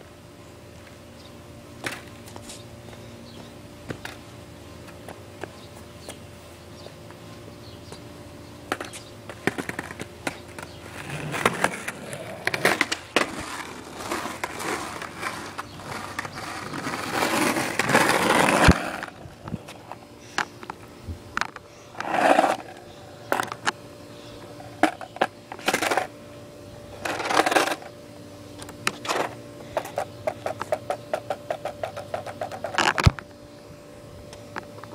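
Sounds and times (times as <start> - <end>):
skateboard wheels rolling on pavement: 0.0 - 34.9
skateboard clacks: 8.7 - 20.8, 28.9 - 33.3.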